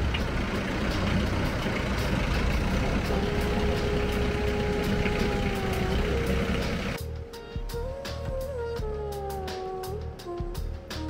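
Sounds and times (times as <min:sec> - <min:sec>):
steady high tone: 0:00.0 - 0:07.2
boat engine rumbling: 0:00.0 - 0:11.0.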